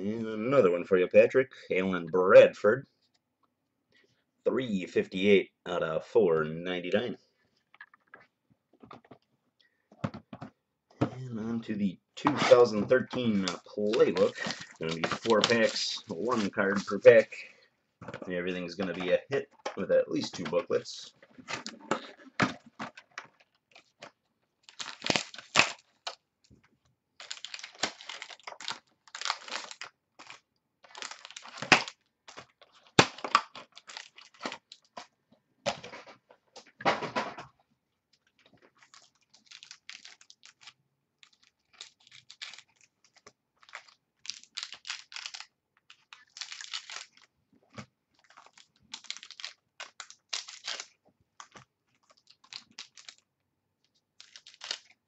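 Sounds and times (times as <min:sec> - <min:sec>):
cards being handled: 0:12.2 - 0:17.4, 0:54.2 - 0:55.0
wrappers tearing and crinkling: 0:12.4 - 0:17.4, 0:23.4 - 0:26.2, 0:27.2 - 0:35.0, 0:38.3 - 0:47.3, 0:48.1 - 0:53.3, 0:54.2 - 0:55.0.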